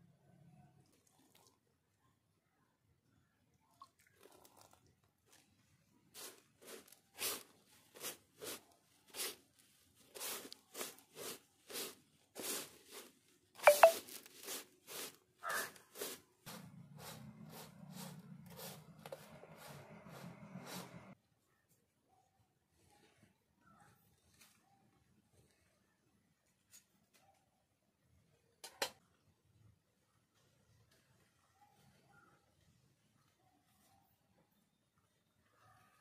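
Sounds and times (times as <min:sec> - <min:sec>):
hands crunching and scraping mixture: 0:06.1 - 0:21.1.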